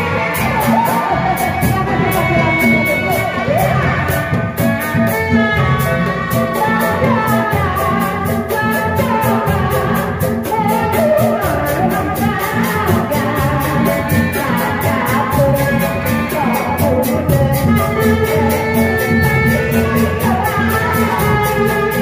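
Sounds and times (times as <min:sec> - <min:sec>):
street band playing: 0:00.0 - 0:22.0
woman singing into microphone: 0:00.0 - 0:22.0.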